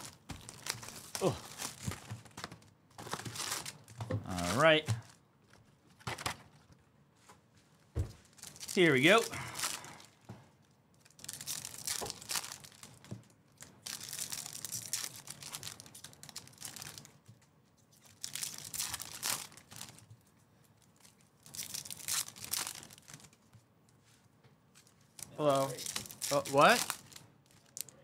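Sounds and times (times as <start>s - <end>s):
card wrappers tearing and crinkling: 0.0s - 5.2s, 8.3s - 10.2s, 11.0s - 17.2s, 17.9s - 20.1s, 20.9s - 23.4s, 24.8s - 28.0s.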